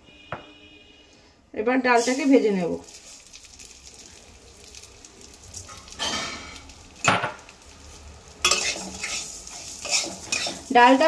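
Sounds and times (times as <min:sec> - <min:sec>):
lentils sizzling in oil: 0:01.8 - 0:11.0.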